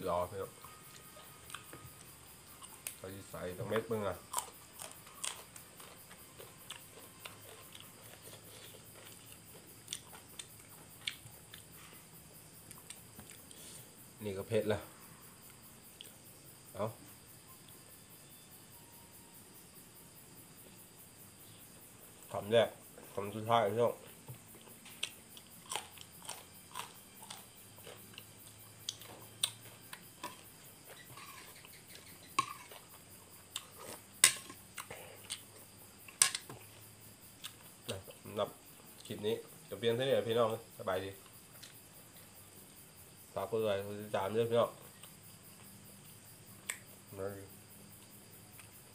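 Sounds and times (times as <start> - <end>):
faint chewing: 0.6 - 12.0, 12.6 - 13.8, 24.0 - 38.3, 48.0 - 48.9.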